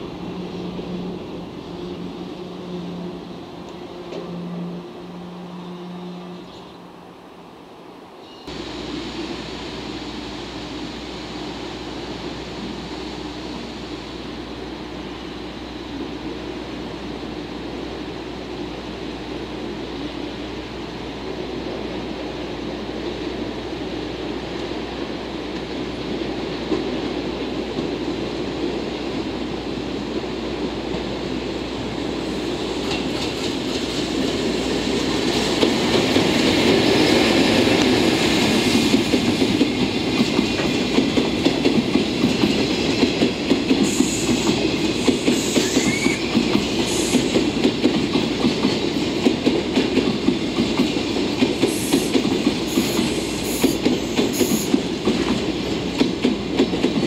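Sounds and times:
electric locomotive passing: 0.0s - 57.0s
wheel squeal: 45.4s - 46.3s.

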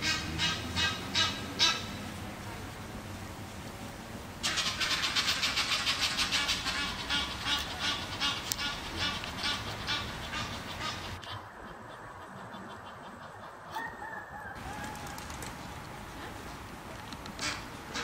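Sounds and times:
geese honking harshly: 0.0s - 2.0s, 4.4s - 14.2s, 17.4s - 18.0s.

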